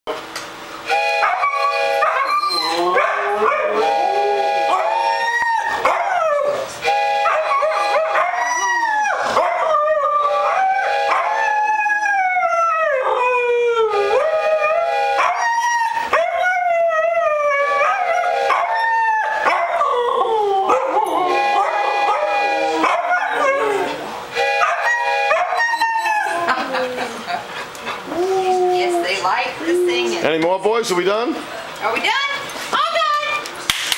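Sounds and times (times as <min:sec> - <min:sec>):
wooden whistle tones: 0:00.9 - 0:02.8, 0:03.8 - 0:05.6
dogs howling: 0:01.2 - 0:27.4, 0:28.0 - 0:30.2.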